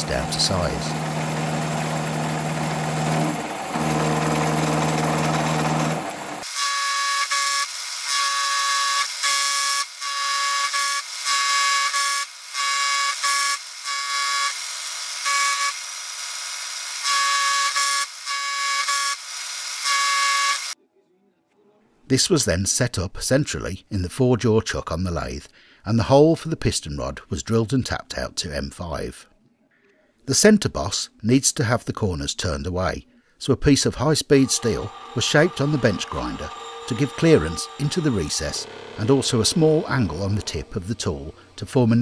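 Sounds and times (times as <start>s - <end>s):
milling machine motor hum: 0.0s - 6.5s, 34.4s - 42.0s
high-pitched cutter squeal: 2.9s - 20.8s, 34.4s - 42.0s.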